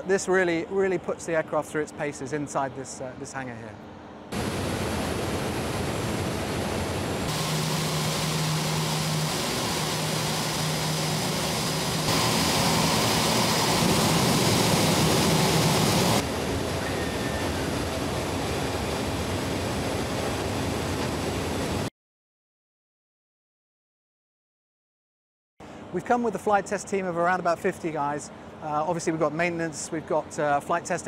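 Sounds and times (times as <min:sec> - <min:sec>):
jet engine rushing noise: 0:04.3 - 0:21.9
low hum: 0:04.3 - 0:21.9.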